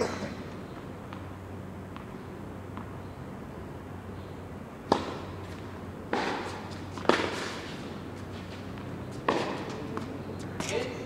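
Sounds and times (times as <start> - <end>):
tennis ball bouncing: 1.0 - 3.0, 4.8 - 11.0
racket hitting tennis ball: 4.9 - 10.9.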